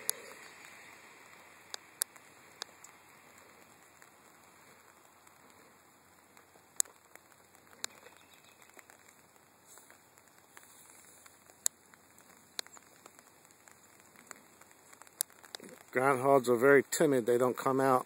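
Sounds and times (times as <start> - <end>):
light rain patter: 0.0 - 18.0
sharp raindrop ticks: 0.0 - 18.0.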